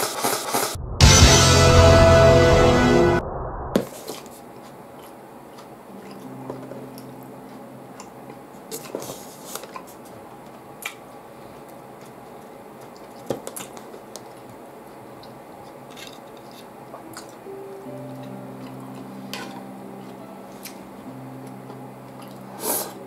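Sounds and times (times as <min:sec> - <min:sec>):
squishy chewing of noodles: 0:04.6 - 0:10.0, 0:21.5 - 0:23.0.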